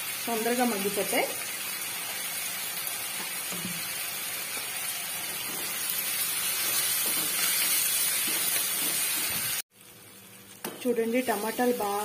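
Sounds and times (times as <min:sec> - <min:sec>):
vegetables sizzling in a pan: 0:00.0 - 0:12.0
wooden spatula scraping: 0:06.6 - 0:09.6.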